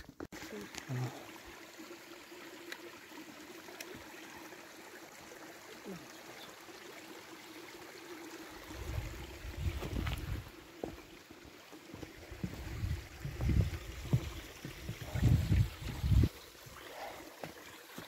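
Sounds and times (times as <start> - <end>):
stream trickling: 0.0 - 18.0
wind buffeting microphone: 12.4 - 16.4.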